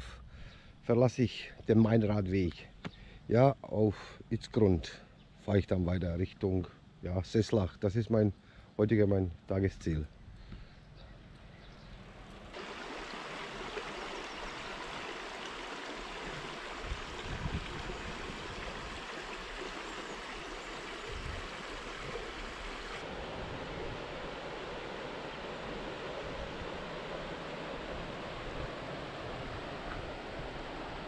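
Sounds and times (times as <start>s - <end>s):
stream running over stones: 12.5s - 23.1s
river flowing over riffle: 12.5s - 31.0s.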